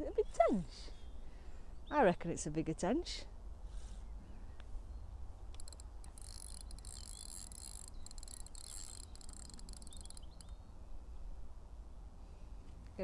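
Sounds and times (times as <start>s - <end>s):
fishing reel ticking buzz: 5.5s - 10.5s.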